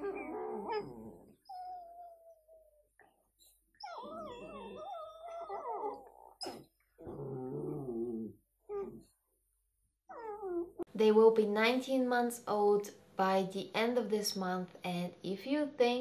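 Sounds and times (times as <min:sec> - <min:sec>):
puppies whining and howling: 0:00.0 - 0:03.0, 0:03.7 - 0:09.1, 0:10.1 - 0:10.9.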